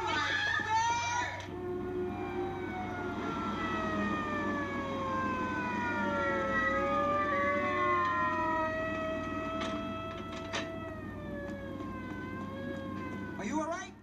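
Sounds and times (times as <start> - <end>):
police sirens winding down: 0.0 - 14.0.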